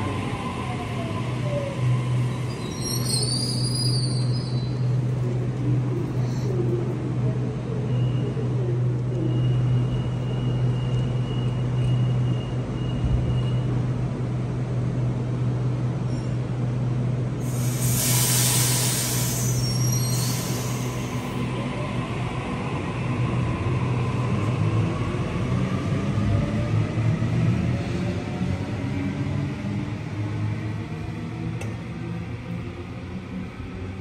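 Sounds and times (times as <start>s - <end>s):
train motors humming: 13.7s - 26.6s
loud hiss of air: 17.4s - 21.4s.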